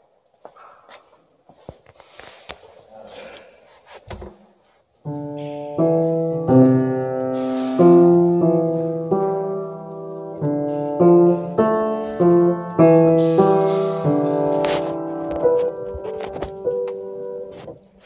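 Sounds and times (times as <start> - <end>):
knocks and rustles: 3.8 - 18.0
piano playing held chords: 5.1 - 18.0.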